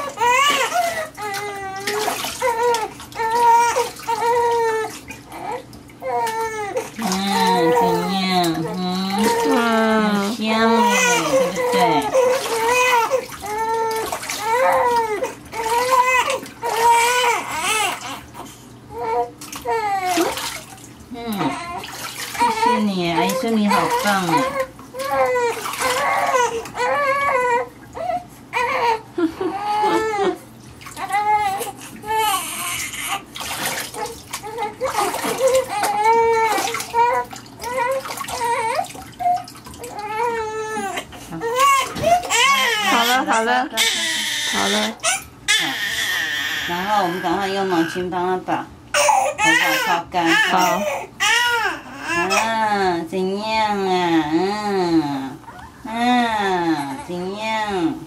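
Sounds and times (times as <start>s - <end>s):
water splashing in steel basin: 0.0s - 18.4s, 19.4s - 28.0s, 29.8s - 45.7s
newborn baby crying: 0.0s - 20.4s, 21.4s - 30.4s, 31.0s - 33.3s, 34.0s - 48.1s, 48.9s - 52.5s.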